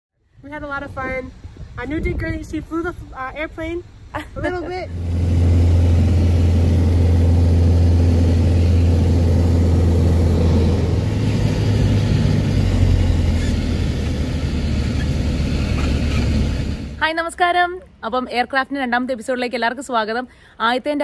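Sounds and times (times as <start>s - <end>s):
propeller plane engine droning: 4.7s - 17.0s.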